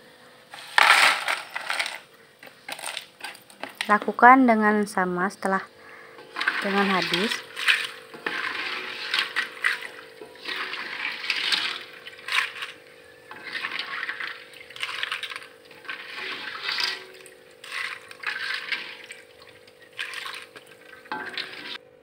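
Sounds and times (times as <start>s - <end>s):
steady low hum: 0.0s - 22.0s
crackers rattling in strainer: 0.6s - 4.1s, 6.3s - 21.8s
oil sizzling: 6.2s - 21.8s.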